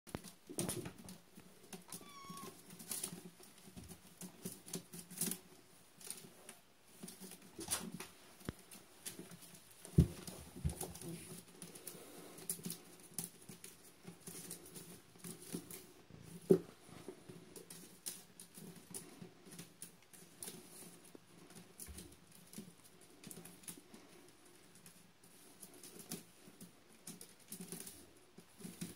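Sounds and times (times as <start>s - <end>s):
kitten mewing: 1.9s - 2.6s.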